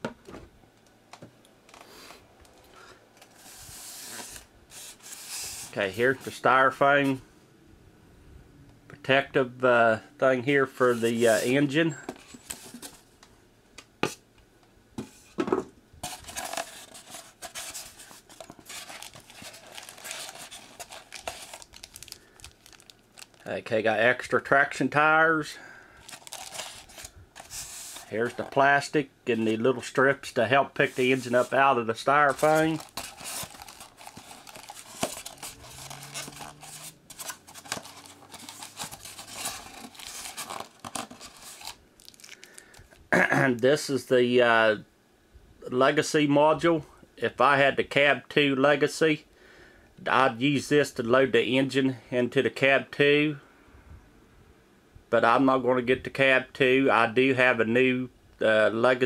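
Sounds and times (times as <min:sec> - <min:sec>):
plastic bags rustling: 0:16.0 - 0:23.5, 0:26.0 - 0:28.5, 0:30.8 - 0:43.0
plastic wrapping crinkling: 0:16.0 - 0:23.5, 0:26.0 - 0:28.5, 0:32.2 - 0:43.0.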